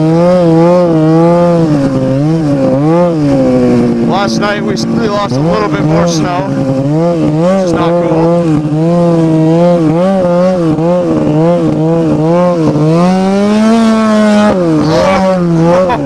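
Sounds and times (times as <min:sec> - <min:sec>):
snowmobile engine revving: 0:00.0 - 0:16.0.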